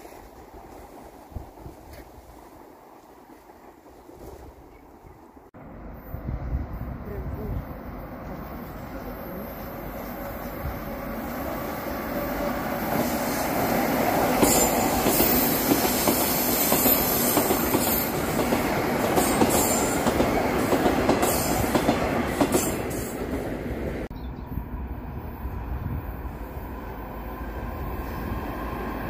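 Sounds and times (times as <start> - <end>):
metro train wheels clattering: 8.4 - 24.1.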